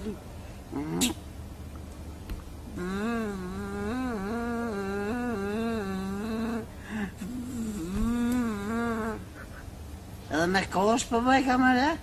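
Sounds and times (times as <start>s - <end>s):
person singing wordless note: 2.7s - 9.3s.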